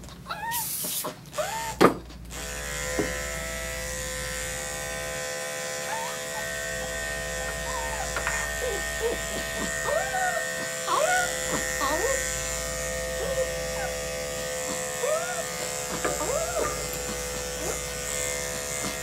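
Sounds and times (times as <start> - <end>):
dog clipper humming: 0.4 - 19.0
short hissing bursts: 0.5 - 1.2.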